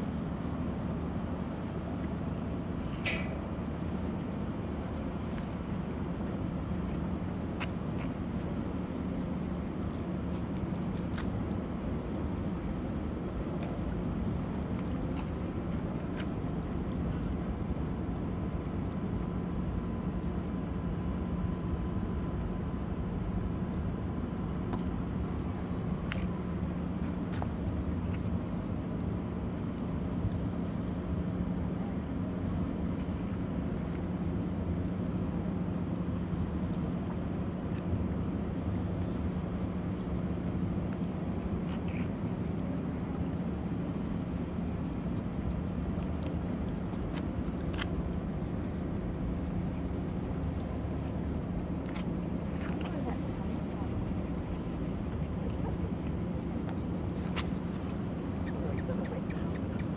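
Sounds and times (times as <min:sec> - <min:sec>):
ship engines humming: 0:29.1 - 0:59.9.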